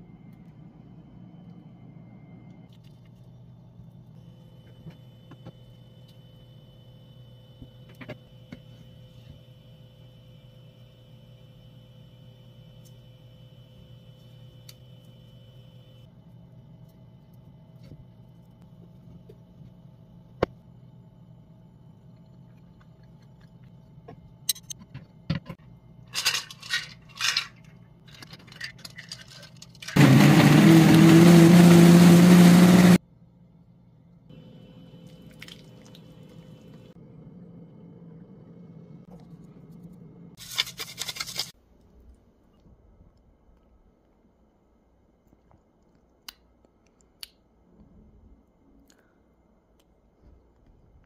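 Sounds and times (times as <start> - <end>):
steady low hum: 0.0 - 30.0, 32.9 - 40.4.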